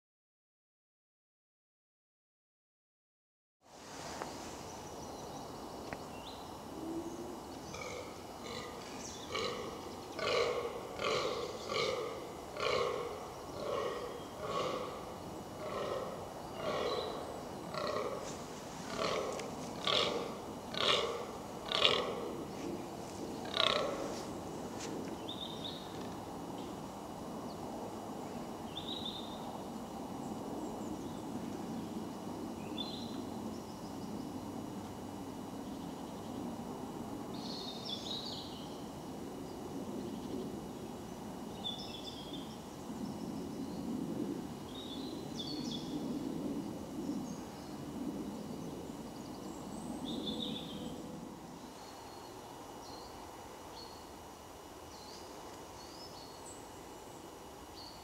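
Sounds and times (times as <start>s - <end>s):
deer groaning: 7.8s - 22.7s, 23.4s - 24.3s.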